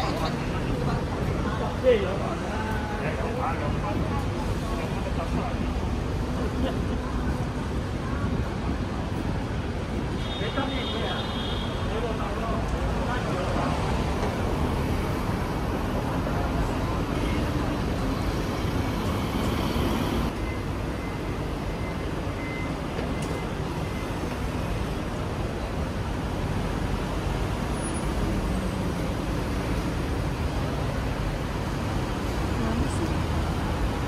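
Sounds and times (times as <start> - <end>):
city street traffic rumble: 0.0 - 34.0.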